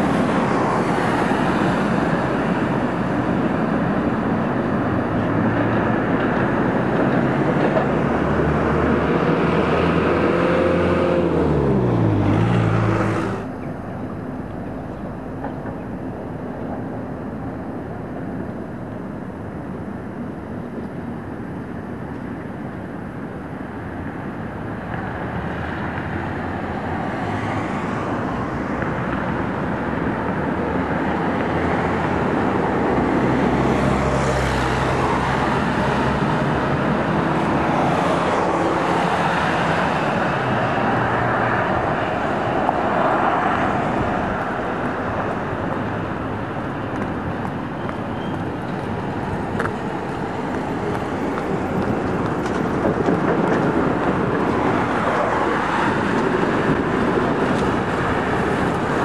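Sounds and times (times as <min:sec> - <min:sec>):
street traffic hum: 0:00.0 - 0:59.0
motor vehicle passing by: 0:05.0 - 0:13.6, 0:30.6 - 0:47.2.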